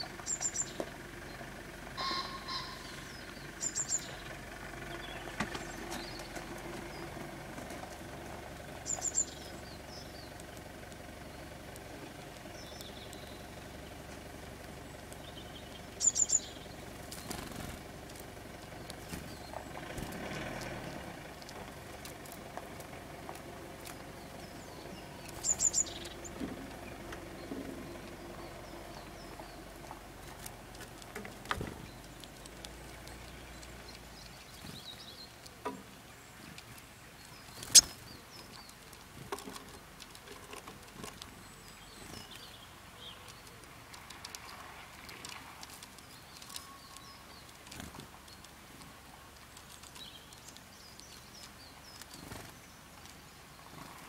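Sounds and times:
birds chirping: 0:00.0 - 0:54.0
beaks tapping on wire: 0:29.8 - 0:53.2.

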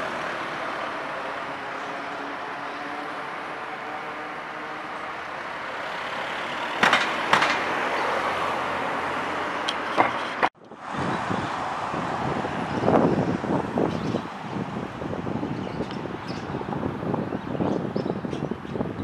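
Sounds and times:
road traffic noise: 0:00.0 - 0:19.0
sharp knocks: 0:06.8 - 0:07.7.

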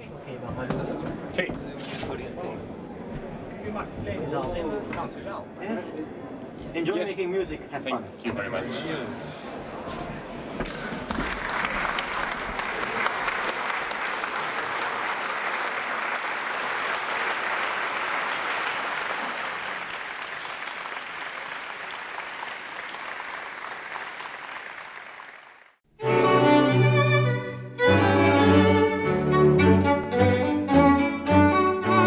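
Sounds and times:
audience applauding: 0:10.6 - 0:25.8
string quartet playing: 0:26.0 - 0:32.0.

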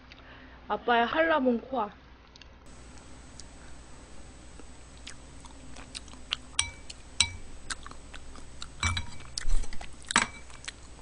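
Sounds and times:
chewing and mouth sounds: 0:04.6 - 0:07.0, 0:07.6 - 0:11.0
spoon and chopsticks clinking bowl: 0:06.5 - 0:07.5, 0:08.8 - 0:09.4, 0:10.1 - 0:10.7.

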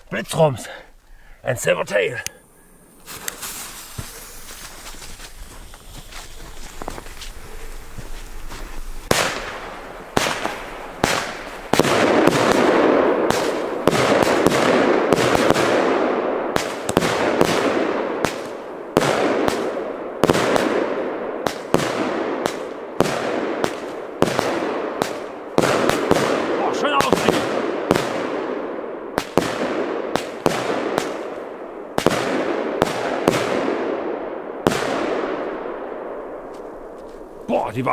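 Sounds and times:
firework tails hissing: 0:02.2 - 0:15.6
firework bangs: 0:02.8 - 0:37.5.

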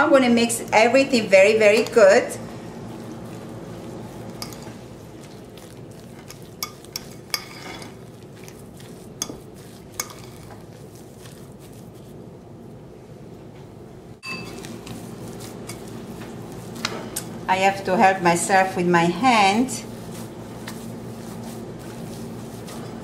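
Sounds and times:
steady low hum: 0:00.0 - 0:23.0
fork scraping through mixture: 0:01.5 - 0:12.2, 0:14.4 - 0:17.4, 0:19.6 - 0:23.0
fork clinking on glass bowl: 0:04.4 - 0:04.7, 0:14.2 - 0:14.7.

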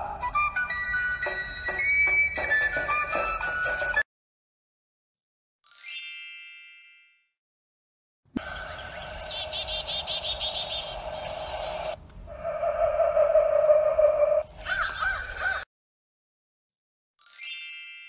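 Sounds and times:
birds chirping: 0:08.4 - 0:15.6
bright chime: 0:17.2 - 0:18.0.

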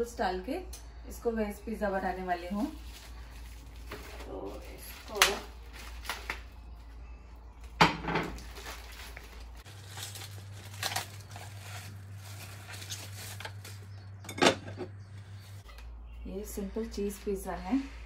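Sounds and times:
plastic wrap crinkling: 0:02.1 - 0:07.0, 0:07.6 - 0:14.2.

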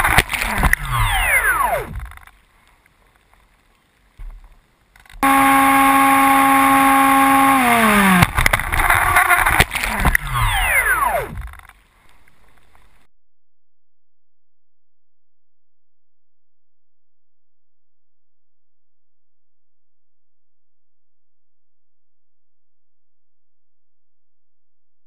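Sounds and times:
electric motor whine: 0:00.0 - 0:02.0, 0:05.2 - 0:11.6
rough noise: 0:00.0 - 0:02.9, 0:04.2 - 0:13.1.

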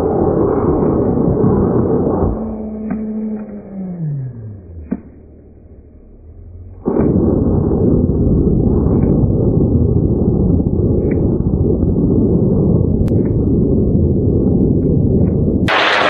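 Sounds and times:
deep rocket motor rumble: 0:00.0 - 0:16.0.

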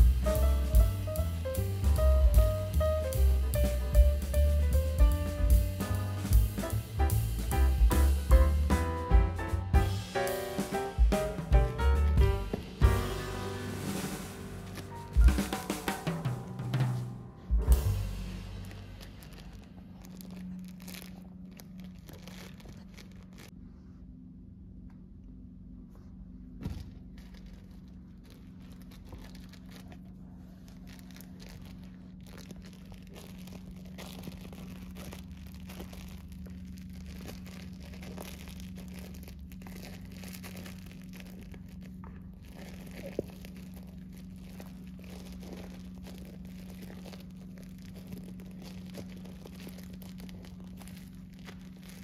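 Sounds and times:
steady low hum: 0:00.0 - 0:52.0
packaging crinkling and tearing: 0:12.5 - 0:17.0, 0:17.7 - 0:23.6, 0:26.7 - 0:52.0.

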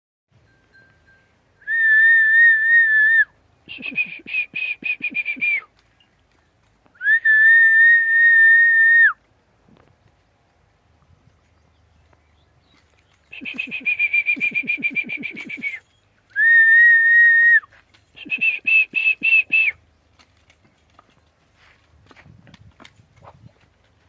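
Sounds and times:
person whistling: 0:01.6 - 0:05.7, 0:07.0 - 0:09.2, 0:13.3 - 0:19.8.

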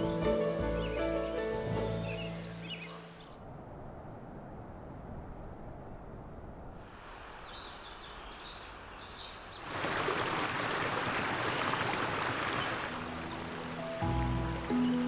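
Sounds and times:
small birds chirping: 0:00.3 - 0:03.4, 0:06.8 - 0:09.7
high bird calls: 0:02.0 - 0:03.4
stream rushing over rocks: 0:09.5 - 0:15.0.

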